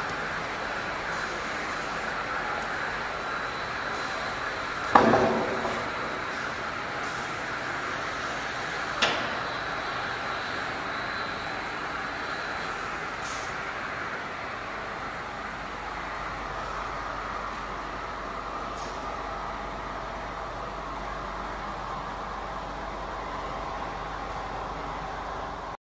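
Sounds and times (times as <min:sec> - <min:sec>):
sharp knock: 0:04.9 - 0:05.8.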